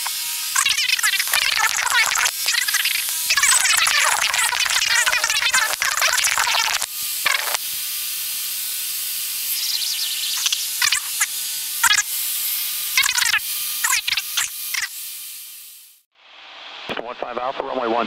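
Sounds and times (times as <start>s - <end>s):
radio intercom hiss: 0.0s - 7.6s
garbled radio chatter: 0.6s - 7.6s, 10.4s - 12.0s.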